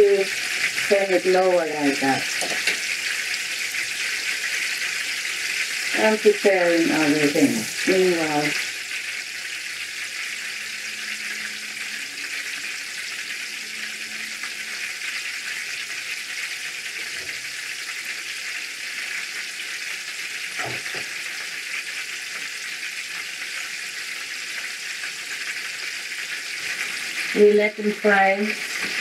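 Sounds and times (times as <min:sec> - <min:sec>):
food sizzling in hot oil: 0:00.0 - 0:29.0.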